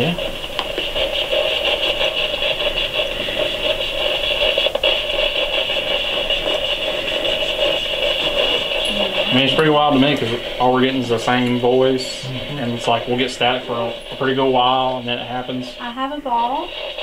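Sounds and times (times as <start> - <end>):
pulsing radio static hiss: 0.0 - 17.0.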